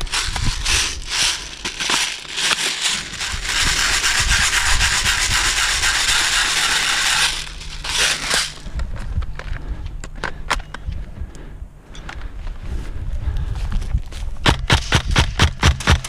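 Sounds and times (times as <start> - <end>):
scraping rub: 0.0 - 8.7.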